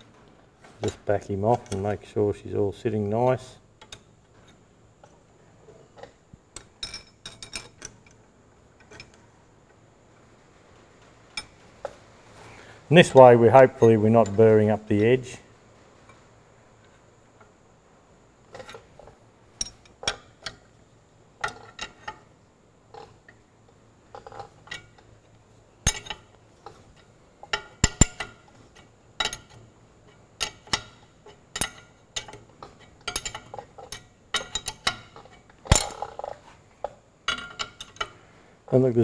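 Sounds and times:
spanner clinking on a nut: 6.6s - 8.2s, 25.8s - 26.3s, 27.0s - 36.3s.

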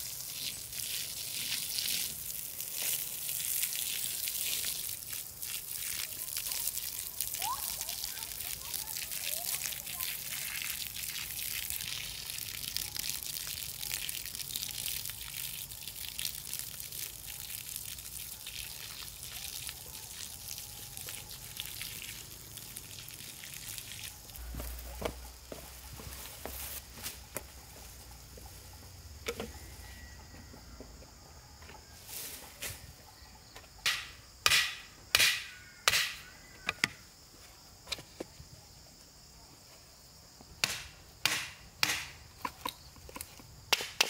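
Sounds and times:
hose water splashing on soil: 0.0s - 29.7s
sharp knocks: 33.8s - 36.2s.

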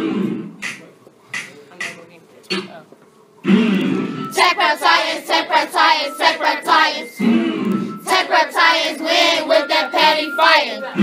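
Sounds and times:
students singing in unison: 3.4s - 11.0s.

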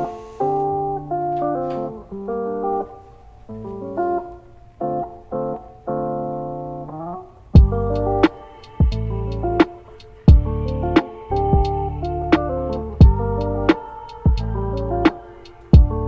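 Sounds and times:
plucked guitar melody: 0.0s - 16.0s
deep beat: 7.6s - 9.7s, 10.3s - 14.9s, 15.8s - 16.0s.

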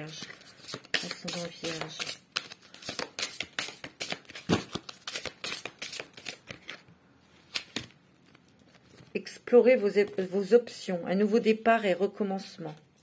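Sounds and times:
cards being shuffled: 0.0s - 9.1s.

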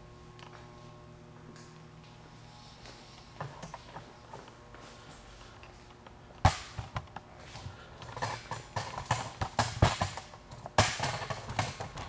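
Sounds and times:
footsteps on concrete floor: 0.3s - 6.0s.

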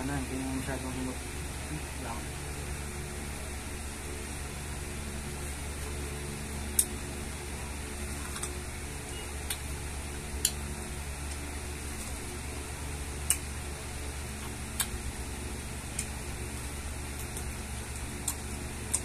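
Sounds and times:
fan hum: 0.0s - 19.0s
chewing and lip smacks: 13.2s - 13.5s, 14.4s - 15.0s, 17.2s - 19.0s.

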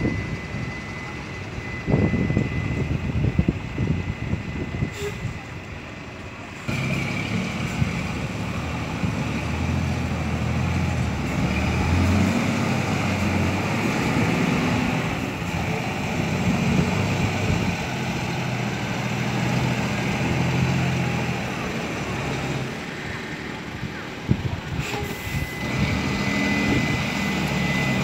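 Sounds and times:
truck diesel engine revving: 6.7s - 28.0s.

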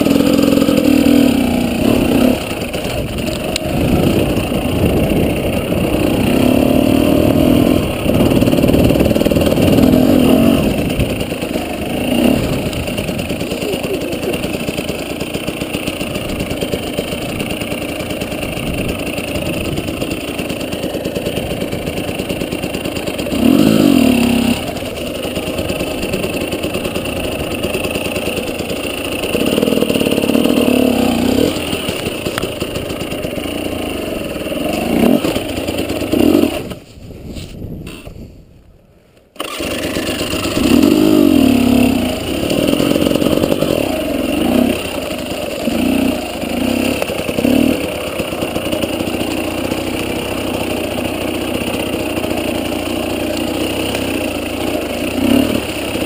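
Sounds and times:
dirt bike engine revving: 0.0s - 36.9s, 39.4s - 56.0s.

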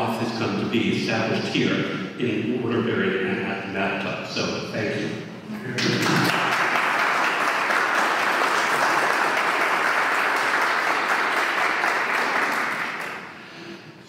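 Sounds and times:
audience applauding: 5.8s - 13.9s.

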